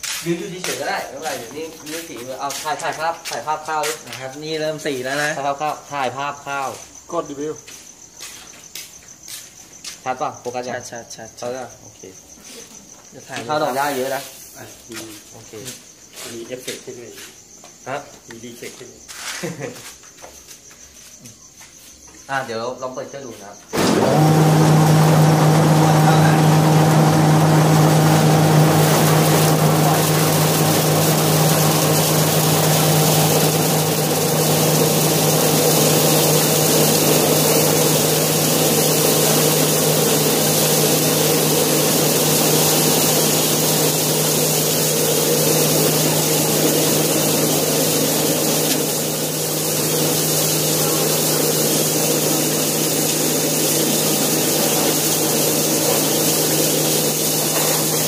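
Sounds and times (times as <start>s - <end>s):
rice milling machine running: 0.0s - 5.8s, 13.4s - 14.3s, 23.8s - 58.0s.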